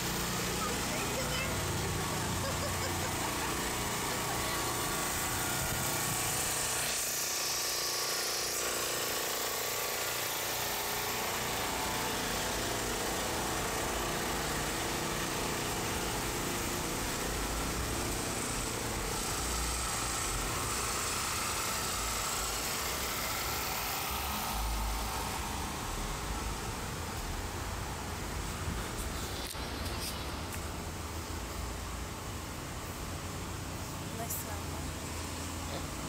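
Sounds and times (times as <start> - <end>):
food truck motors humming: 0.0 - 8.0, 8.9 - 36.0.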